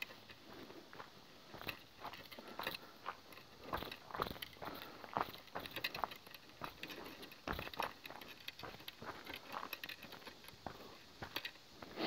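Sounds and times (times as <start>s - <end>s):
footsteps on gritty path: 0.0s - 12.0s.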